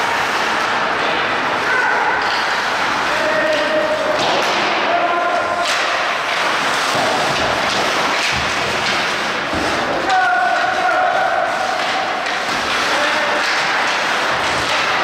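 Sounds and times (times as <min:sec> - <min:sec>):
crowd voices: 0:00.0 - 0:15.0
crowd shouts: 0:01.6 - 0:04.1, 0:10.0 - 0:11.8.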